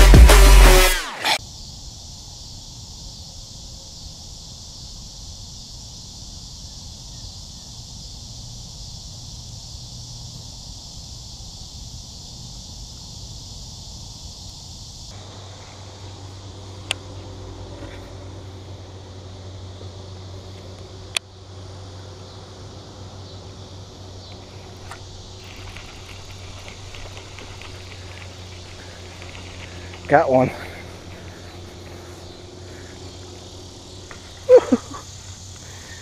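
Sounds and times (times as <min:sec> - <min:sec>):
insect chorus: 0:00.0 - 0:36.0
low hum: 0:15.1 - 0:36.0.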